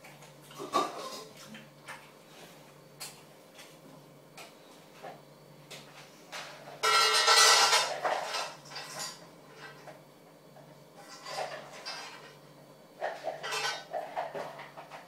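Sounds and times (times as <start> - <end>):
metal bowl clattering: 6.8 - 9.8, 13.0 - 14.4.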